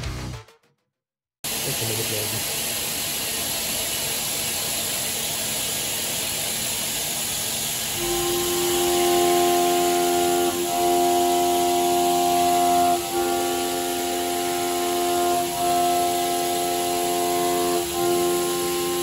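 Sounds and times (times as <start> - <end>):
milling cutter pitched tone: 7.9 - 19.0.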